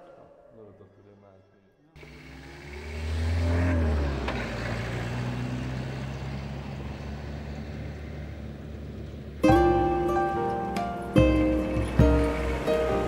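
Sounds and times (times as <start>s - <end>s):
vehicle engine on gravel road: 2.0s - 9.4s, 11.6s - 13.0s
music: 9.4s - 13.0s.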